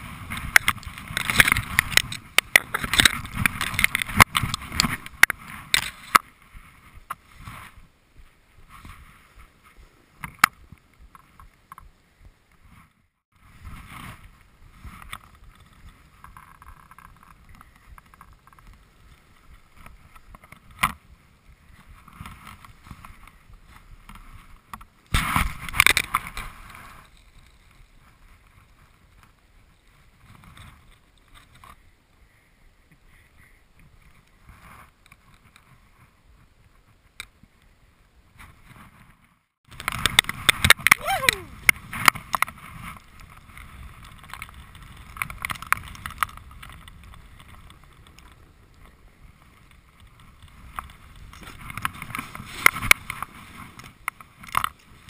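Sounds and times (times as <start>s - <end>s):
wind on microphone: 0.0s - 55.0s
snowboard scraping on snow: 3.2s - 10.2s, 12.6s - 16.3s, 21.0s - 31.1s, 46.4s - 55.0s.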